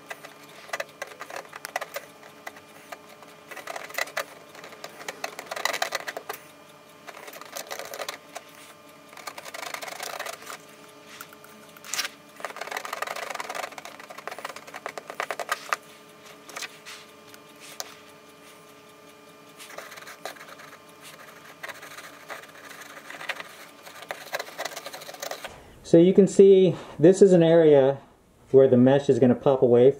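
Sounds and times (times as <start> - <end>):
welder tip scraping metal mesh: 0.0 - 25.5.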